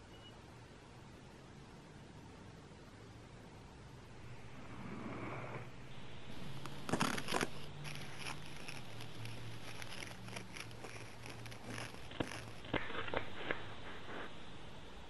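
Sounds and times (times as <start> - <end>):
low steady hum: 0.0 - 15.0
onion skin crackling: 6.1 - 14.6
onion crunching as cut: 6.3 - 14.3.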